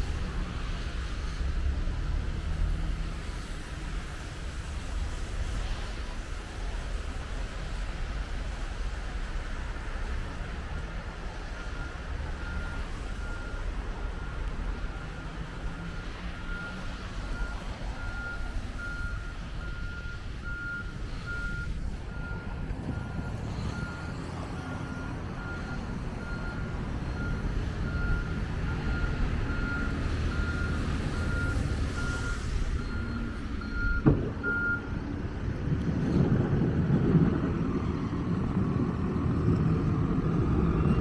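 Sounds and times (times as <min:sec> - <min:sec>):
diesel engine running: 0:11.2 - 0:41.0
reversing alarm beeping: 0:11.5 - 0:34.9.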